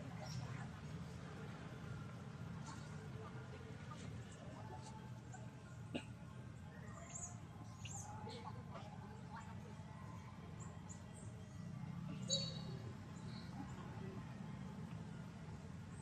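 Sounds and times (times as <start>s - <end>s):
high bird chirps: 12.3s - 12.7s.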